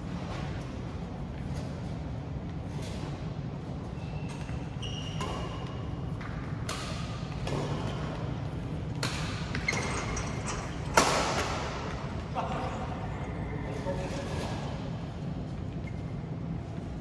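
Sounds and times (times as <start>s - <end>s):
racket hitting shuttlecock: 6.2s - 8.2s, 8.9s - 9.7s.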